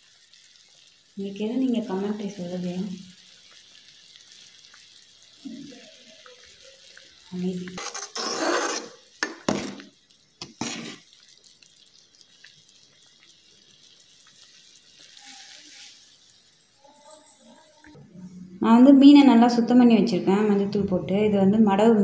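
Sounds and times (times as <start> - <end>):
curry boiling: 0.0 - 18.0
ladle stirring in metal pot: 7.7 - 11.2.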